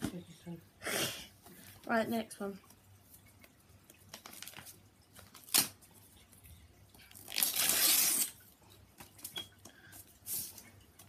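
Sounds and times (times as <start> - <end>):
paper envelope tearing: 7.2 - 8.4.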